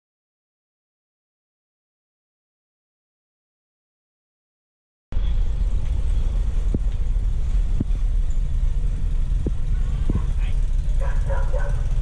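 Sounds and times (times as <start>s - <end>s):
vehicle engine rumbling: 5.1s - 12.0s.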